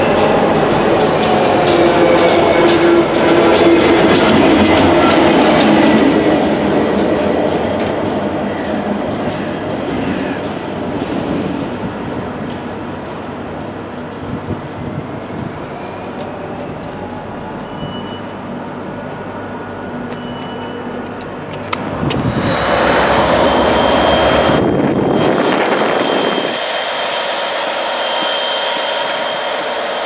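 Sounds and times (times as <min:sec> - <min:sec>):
locomotive engine high whine: 0:00.0 - 0:09.6, 0:15.2 - 0:30.0
diesel locomotive engine drone: 0:00.0 - 0:30.0.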